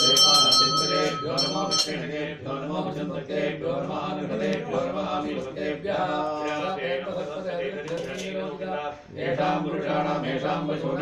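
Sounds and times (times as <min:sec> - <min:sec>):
bell ringing: 0:00.0 - 0:02.2.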